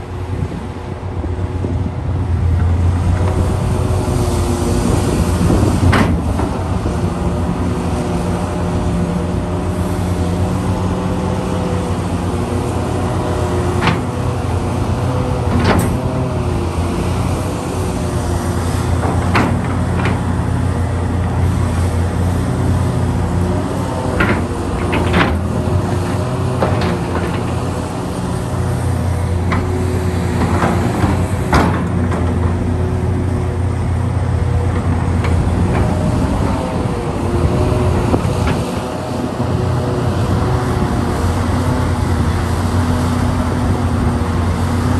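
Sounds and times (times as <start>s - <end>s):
excavator engine and hydraulics: 0.0s - 44.9s.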